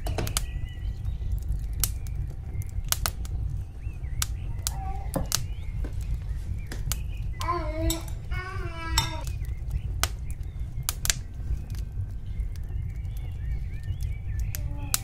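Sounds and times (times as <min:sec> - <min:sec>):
low rumble: 0:00.0 - 0:15.0
child's voice: 0:04.7 - 0:05.3, 0:07.4 - 0:09.3, 0:14.6 - 0:15.0.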